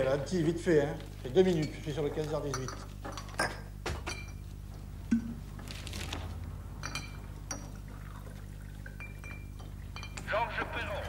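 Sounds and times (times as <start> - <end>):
glassware and crockery clinking: 1.4 - 4.5, 6.8 - 8.2, 8.8 - 10.9.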